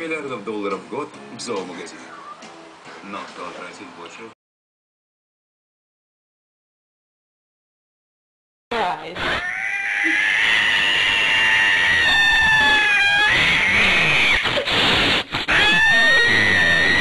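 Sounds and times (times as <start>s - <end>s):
cat yowling: 2.1s - 2.4s, 9.2s - 14.7s, 15.4s - 17.0s
cat hissing: 9.2s - 17.0s.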